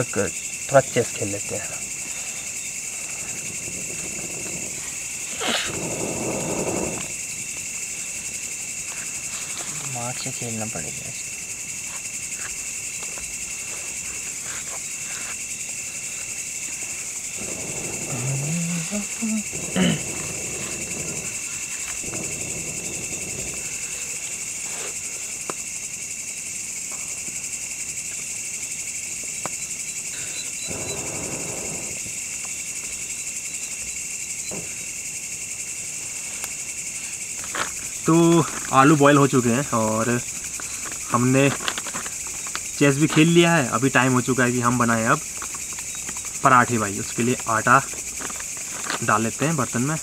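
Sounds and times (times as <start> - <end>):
crickets chirring: 0.0 - 50.0
low voice murmur: 17.6 - 21.3.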